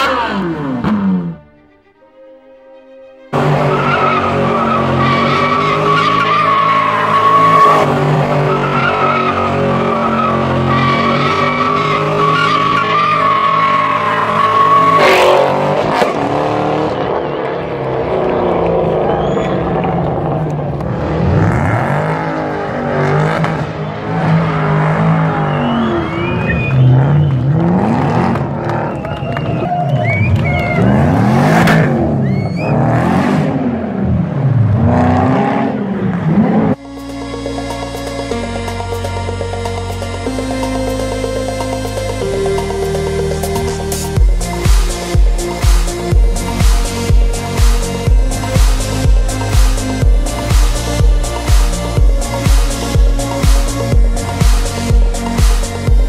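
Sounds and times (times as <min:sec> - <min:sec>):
engine at high revs: 0:00.0 - 0:01.5, 0:03.3 - 0:36.8, 0:41.8 - 0:56.0
tyre squeal: 0:19.0 - 0:19.8, 0:32.1 - 0:33.0.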